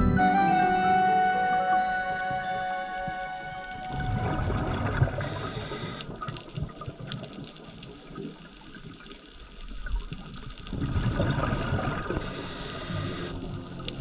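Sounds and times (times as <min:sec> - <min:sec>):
underwater scuba breathing bubbles: 0:04.0 - 0:08.4, 0:10.7 - 0:14.0
faint background music: 0:13.3 - 0:14.0.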